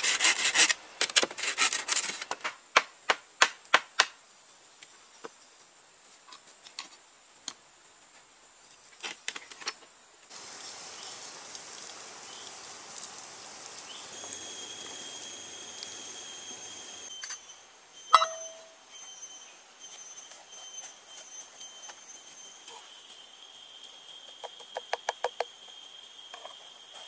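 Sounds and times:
insect calls: 4.2s - 27.0s
wood fire crackling: 10.3s - 18.1s
metal cup clink: 18.1s - 18.8s.

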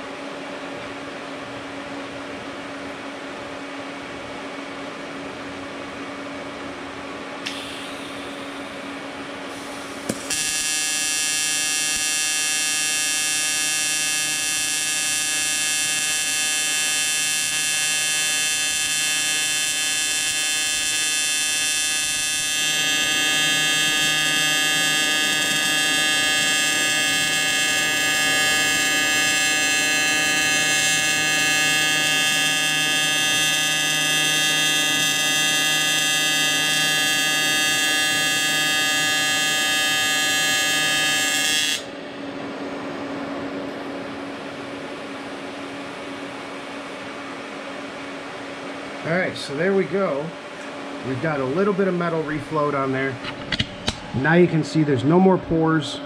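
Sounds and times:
welding arc buzzing: 7.4s - 45.5s, 51.0s - 54.5s.

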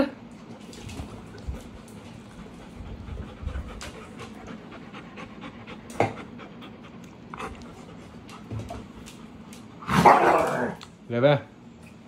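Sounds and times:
dog panting: 1.4s - 9.8s.

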